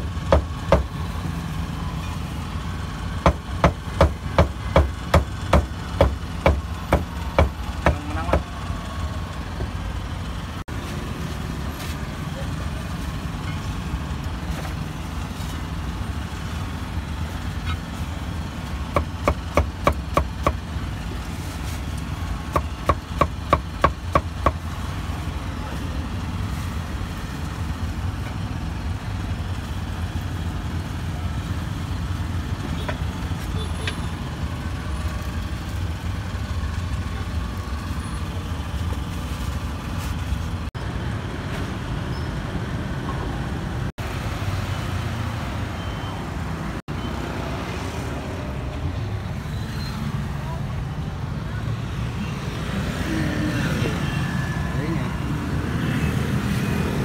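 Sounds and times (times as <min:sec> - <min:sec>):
street traffic noise: 0:00.0 - 0:57.0
cleaver chopping meat on wood: 0:03.3 - 0:08.4, 0:18.9 - 0:20.6, 0:22.5 - 0:24.6.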